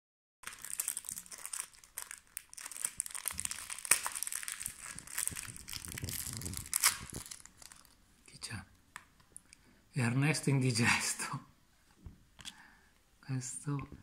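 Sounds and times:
foil wrapper tearing and crinkling: 0:00.4 - 0:08.0.

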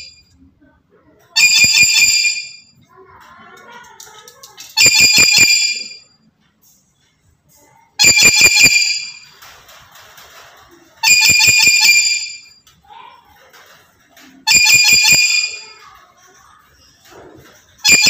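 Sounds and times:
parrot shrill calls: 0:08.0 - 0:09.2, 0:14.4 - 0:15.6.

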